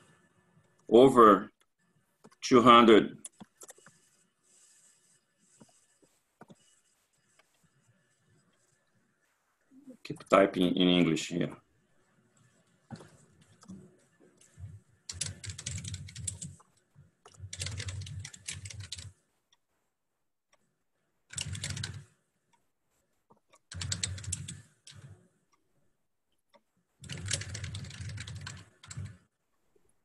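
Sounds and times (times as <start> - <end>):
keyboard typing: 3.2 - 4.8, 12.4 - 19.2, 21.3 - 22.2, 23.3 - 25.2, 27.0 - 29.3.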